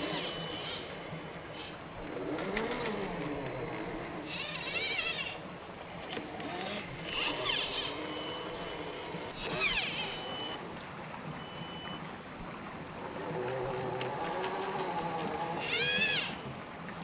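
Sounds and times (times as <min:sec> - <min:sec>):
electric motor whining: 0:00.0 - 0:11.4, 0:12.4 - 0:16.8.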